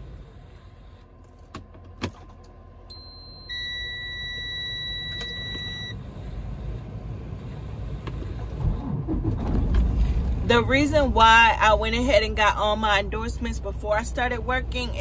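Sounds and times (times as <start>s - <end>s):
low steady rumble: 0.0s - 15.0s
high electronic beep: 2.9s - 6.0s.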